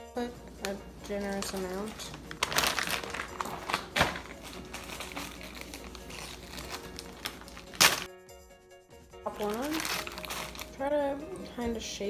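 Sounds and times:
plastic bags crinkling: 0.5s - 8.1s, 9.3s - 10.9s
plastic bag pulled open: 1.1s - 8.1s, 9.4s - 10.8s.

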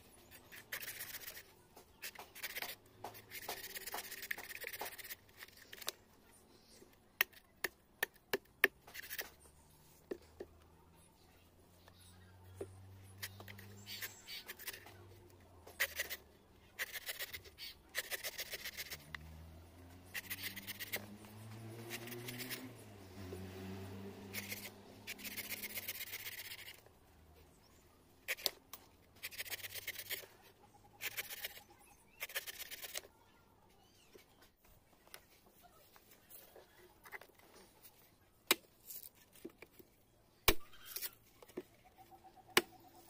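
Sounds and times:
knife shaving coconut husk: 0.2s - 6.0s, 12.7s - 26.9s, 28.2s - 33.1s.

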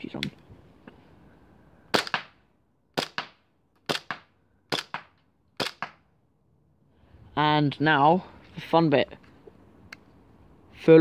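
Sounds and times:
airsoft pistol shots: 1.9s - 2.4s, 3.0s - 6.0s.

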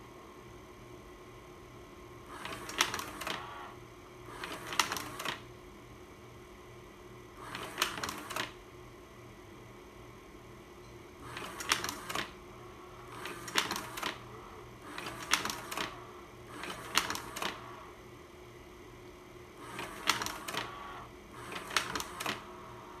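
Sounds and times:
projector hum: 0.0s - 23.0s
slide projector mechanical clacks: 2.3s - 3.5s, 4.3s - 5.4s, 11.2s - 12.4s, 13.1s - 14.3s, 14.9s - 17.8s, 19.6s - 22.5s.

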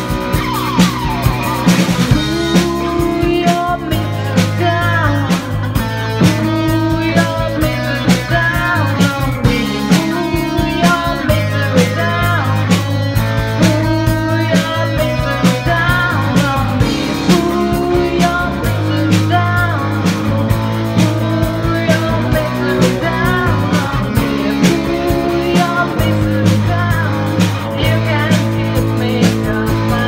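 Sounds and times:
rock guitar: 0.0s - 30.0s
steady drum beat: 0.0s - 30.0s
woman singing into a microphone: 2.1s - 12.7s.

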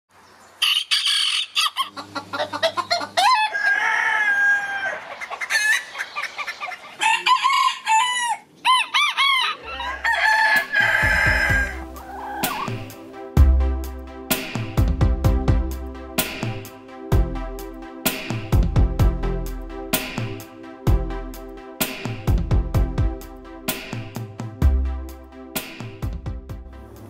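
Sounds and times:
rooster crowing: 0.6s - 1.9s, 2.9s - 6.0s, 6.6s - 12.7s
chickens clucking: 0.6s - 12.9s
music with low beat: 10.6s - 27.0s.

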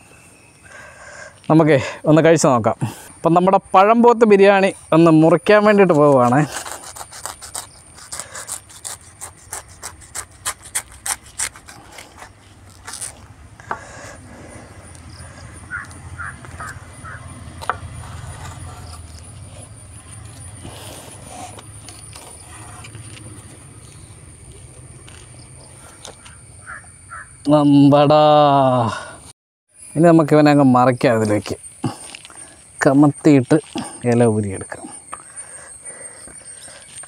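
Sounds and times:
knife sawing through leaf wrapping: 5.5s - 13.3s, 13.9s - 26.1s.

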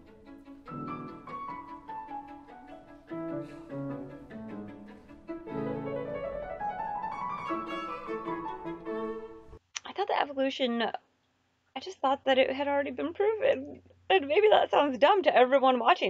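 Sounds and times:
classical violin and piano music: 0.0s - 9.6s.

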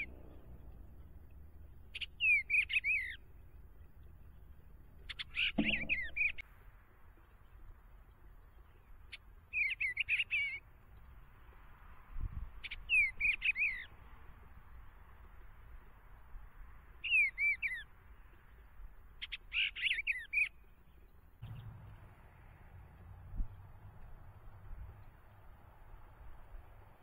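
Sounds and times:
bird warbling song: 0.0s - 6.4s, 7.2s - 11.2s, 12.6s - 14.0s, 17.0s - 22.2s.

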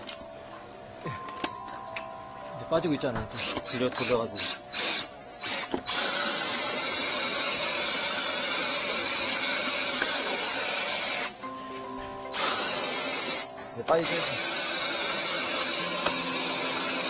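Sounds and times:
drain cleaner grinding in pipe: 3.3s - 11.4s
drill motor and gear whine: 3.4s - 11.3s, 12.4s - 17.0s.

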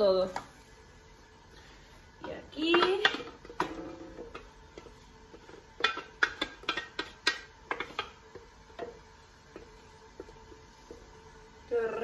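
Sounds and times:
spatula knocking in metal jug: 2.2s - 10.3s.

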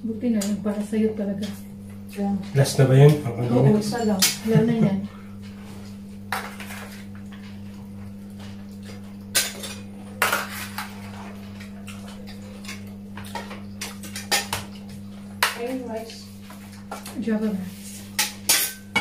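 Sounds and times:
steady low hum: 0.0s - 19.0s
cutlery clinking on plates: 18.2s - 19.0s.

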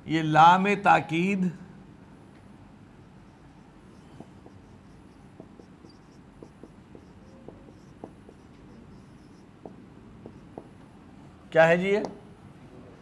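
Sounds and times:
marker writing on whiteboard: 3.4s - 10.9s.

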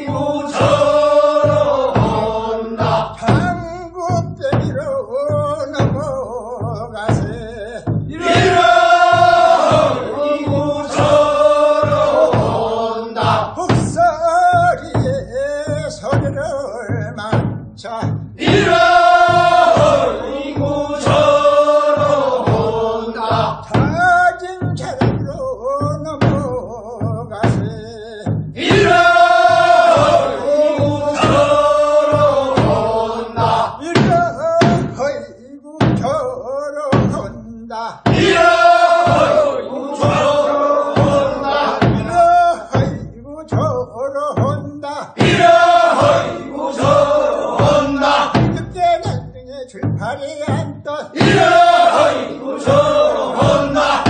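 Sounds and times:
men singing in chorus: 0.0s - 4.7s, 6.6s - 15.1s, 18.0s - 25.0s, 28.6s - 35.0s, 38.1s - 43.0s, 45.1s - 48.7s, 51.1s - 54.0s
sharp knocks: 0.0s - 4.9s, 7.2s - 16.5s, 17.3s - 25.4s, 26.0s - 35.1s, 37.0s - 37.4s, 38.1s - 43.0s, 45.2s - 49.2s, 49.8s - 54.0s
low drum beat: 0.0s - 54.0s.

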